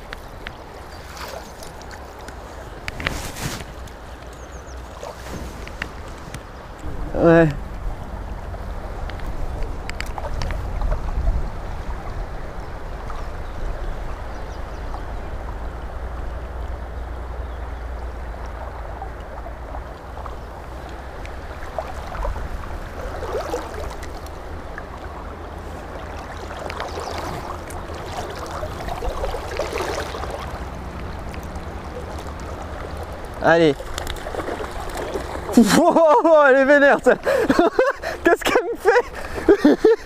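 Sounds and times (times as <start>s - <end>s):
low rumble: 6.8s - 26.6s
fast-flowing river rushing: 18.0s - 40.0s.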